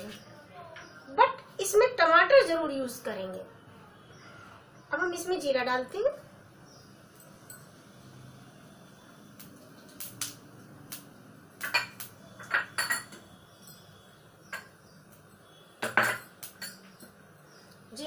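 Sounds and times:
metal utensils and dishes clinking: 11.6s - 13.9s, 15.8s - 17.2s.

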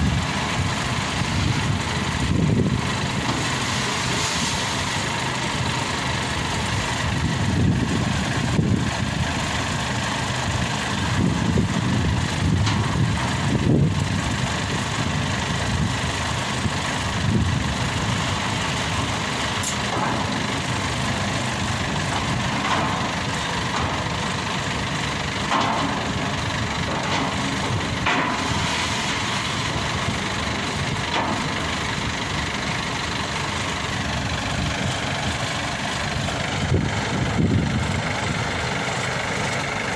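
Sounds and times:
combine harvester engine running: 0.0s - 39.9s.

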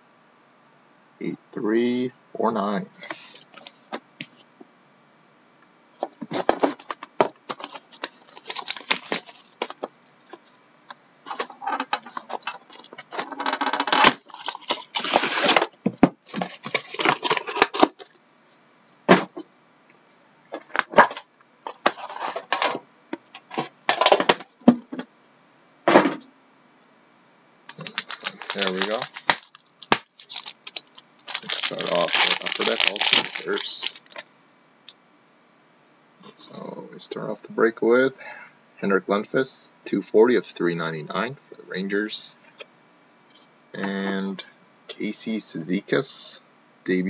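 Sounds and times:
plastic wrap crinkling: 7.5s - 9.8s, 13.8s - 18.0s, 27.7s - 34.3s.

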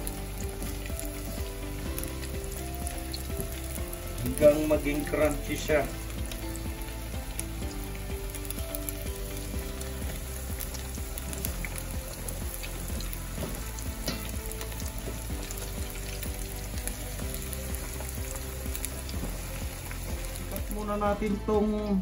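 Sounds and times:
fish skin deep-frying in oil: 0.0s - 22.0s.

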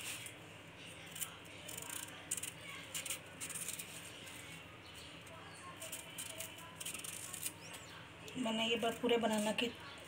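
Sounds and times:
knife peeling banana: 1.1s - 4.1s.

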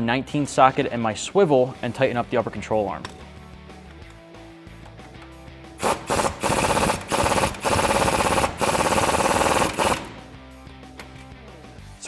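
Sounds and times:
air ratchet rattling: 5.8s - 10.2s.

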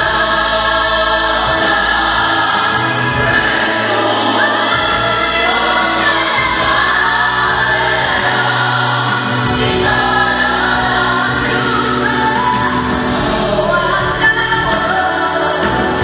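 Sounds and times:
gospel group singing in harmony: 0.0s - 16.0s
low bass line: 0.0s - 16.0s.

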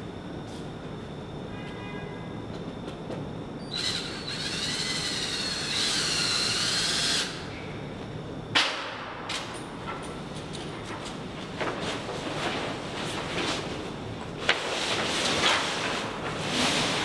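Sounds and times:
cordless drill whining: 3.7s - 7.4s.

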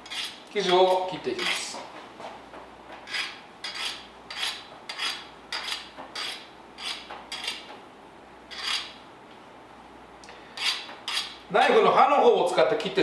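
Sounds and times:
knife scraping metal tin rim: 0.0s - 0.8s, 3.1s - 7.7s, 8.5s - 9.0s, 10.6s - 11.4s.

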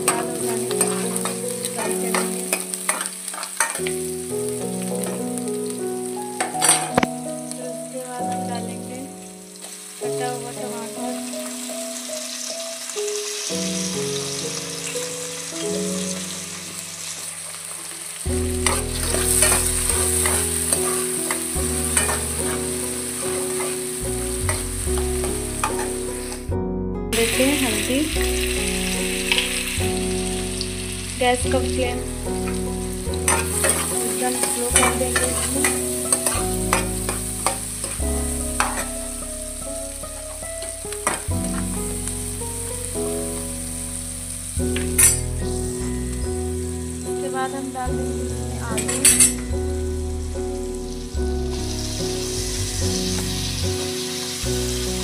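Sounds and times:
vegetables sizzling in hot oil: 0.0s - 26.5s, 27.2s - 55.0s
metal spoon scraping pan: 0.1s - 3.9s, 6.4s - 7.0s, 18.6s - 23.9s, 24.5s - 26.4s, 33.3s - 38.0s, 38.6s - 39.0s, 41.0s - 41.3s, 45.0s - 45.2s, 48.8s - 49.4s
spoon clinking against pan: 48.8s - 49.4s.

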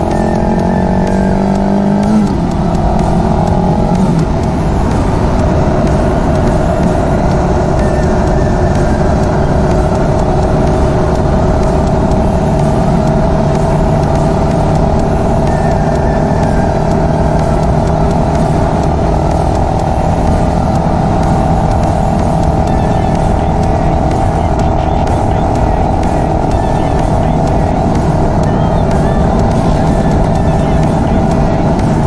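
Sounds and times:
motorcycle engine cruising: 0.0s - 32.0s
wind and road noise: 0.0s - 32.0s.

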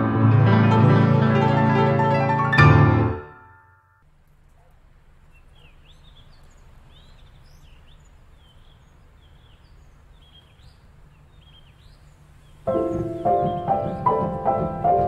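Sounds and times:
low steady rumble: 4.0s - 13.2s
small birds chirping: 4.3s - 15.0s.

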